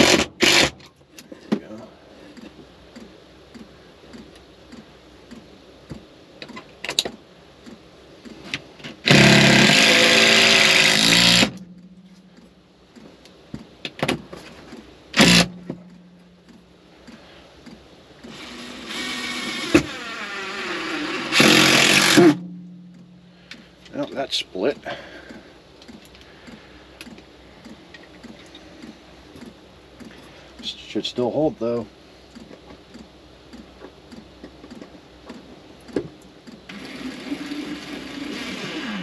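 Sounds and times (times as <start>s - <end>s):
cordless drill driving screws: 0.0s - 0.8s, 9.0s - 11.6s, 15.2s - 15.5s, 18.2s - 22.4s, 36.7s - 39.0s.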